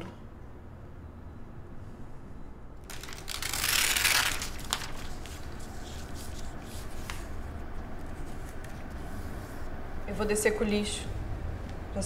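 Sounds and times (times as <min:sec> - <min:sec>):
paper rustling: 0:02.9 - 0:09.7.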